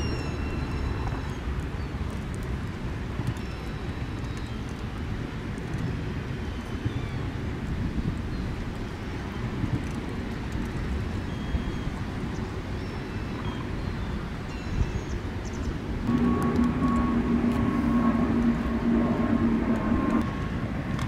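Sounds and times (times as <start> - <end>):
low outdoor rumble: 0.0 - 21.0
steady droning hum: 14.2 - 21.0.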